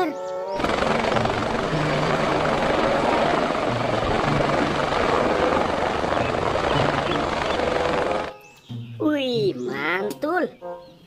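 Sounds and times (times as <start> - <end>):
helicopter rotor and engine: 0.5 - 8.3.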